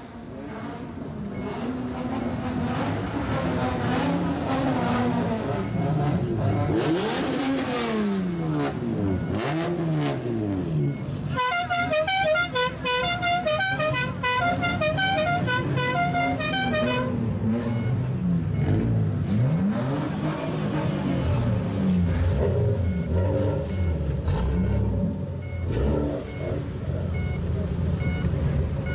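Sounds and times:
car engines revving: 0.0s - 28.9s
musical car horn tune: 11.3s - 17.2s.

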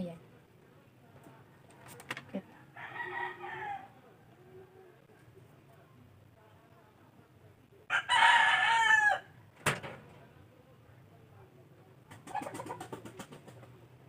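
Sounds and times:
rooster crowing: 2.7s - 4.0s, 7.9s - 9.3s.

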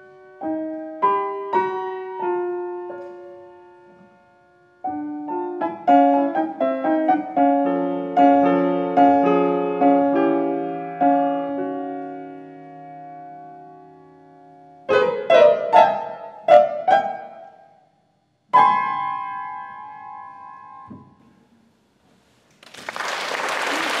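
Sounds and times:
grand piano chords: 0.0s - 21.7s
audience applause: 22.6s - 24.0s.

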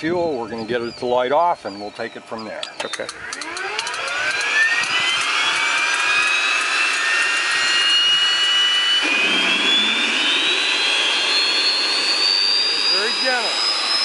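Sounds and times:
turboprop engine starter whine: 0.0s - 14.0s
engine rumble: 2.4s - 14.0s.

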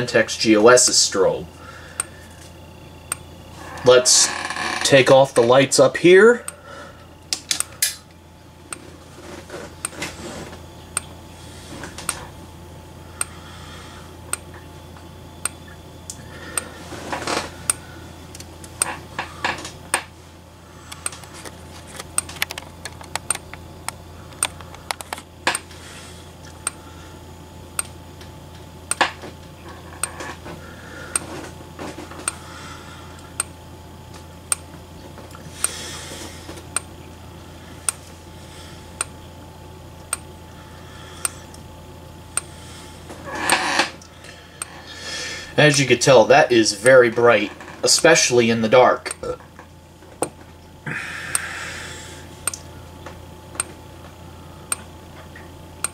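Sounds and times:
steady low hum: 0.0s - 55.9s
strobe light clicking: 2.9s - 3.3s, 7.2s - 8.9s, 10.8s - 11.2s, 11.9s - 12.3s, 13.2s - 13.4s, 14.3s - 16.7s, 20.9s - 25.7s, 26.4s - 26.8s, 27.7s - 29.2s, 33.2s - 33.6s, 34.4s - 34.8s, 36.6s - 37.2s, 37.8s - 38.1s, 39.0s - 39.2s, 40.0s - 40.3s, 41.2s - 41.7s, 42.3s - 42.6s, 52.4s - 53.8s, 54.7s - 54.9s.

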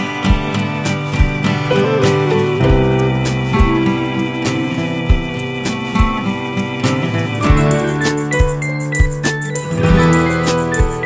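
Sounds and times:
acoustic guitar music with beat: 0.0s - 11.0s.

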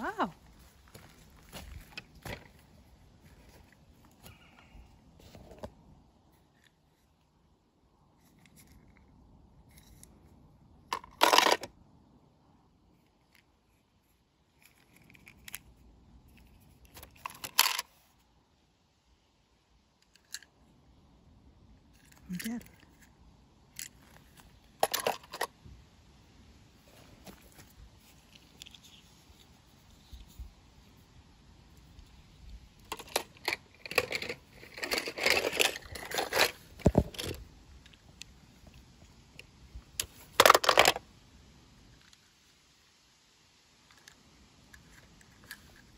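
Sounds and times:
plastic toys rattling and clicking: 10.9s - 11.7s, 16.3s - 18.1s, 23.7s - 25.5s, 32.8s - 37.4s, 40.0s - 41.0s
toy cars scraping on wood: 32.9s - 37.4s.

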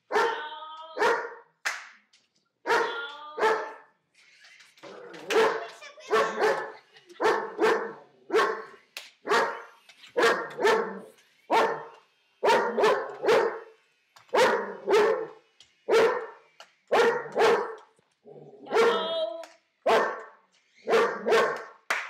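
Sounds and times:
dog barking: 0.1s - 0.4s, 1.0s - 1.4s, 2.7s - 3.8s, 5.3s - 13.6s, 14.3s - 17.8s, 18.7s - 19.0s, 19.8s - 21.7s.

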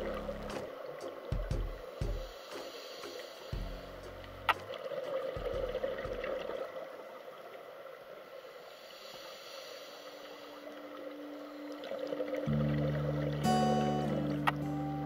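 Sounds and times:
muffled underwater hiss: 0.0s - 12.5s.

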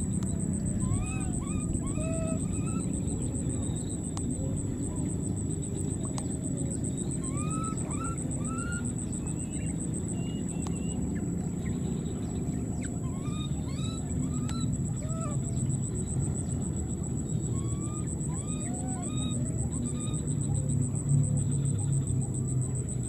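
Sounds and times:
baby monkey crying: 0.8s - 3.0s.

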